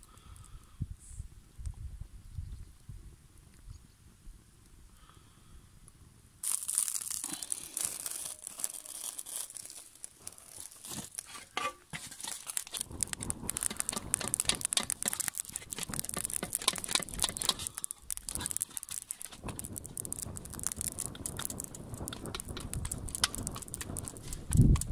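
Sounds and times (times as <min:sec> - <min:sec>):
wood fire crackling and popping: 0:06.4 - 0:24.9.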